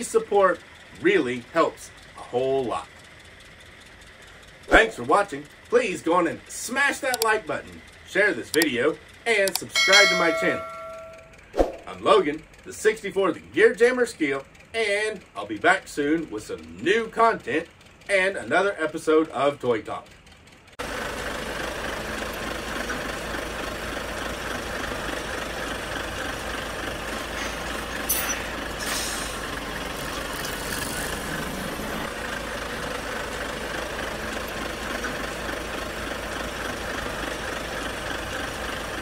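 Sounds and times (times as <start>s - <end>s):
large engine running: 0.0s - 39.0s
brief hisses: 28.2s - 29.5s.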